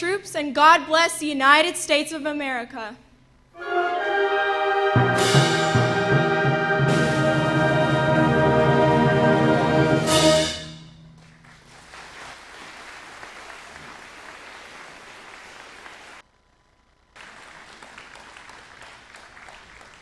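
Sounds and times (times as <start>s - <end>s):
band chord: 3.6s - 12.0s
audience applauding: 11.2s - 16.2s, 17.2s - 20.0s.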